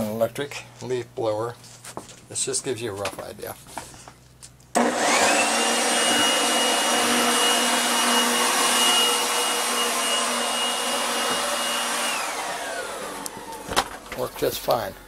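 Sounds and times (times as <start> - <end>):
leaf blower motor whine: 4.8 - 14.1.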